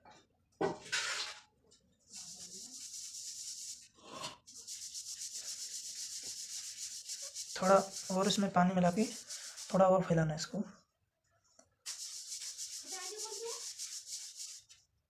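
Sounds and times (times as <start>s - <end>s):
paintbrush scrubbing on paper: 2.1s - 10.6s, 11.8s - 14.9s.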